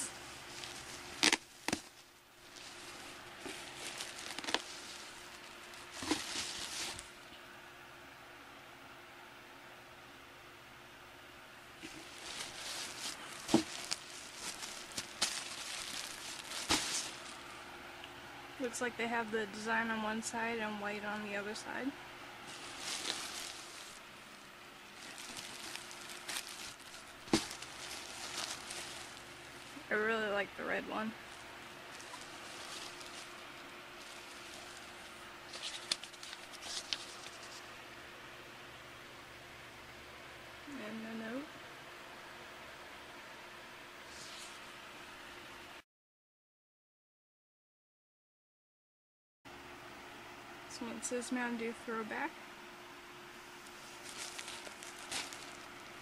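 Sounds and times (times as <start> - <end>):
plastic wrapping crinkling: 0.0 - 7.2, 11.8 - 17.6, 22.4 - 30.4, 31.1 - 37.7, 53.6 - 56.0.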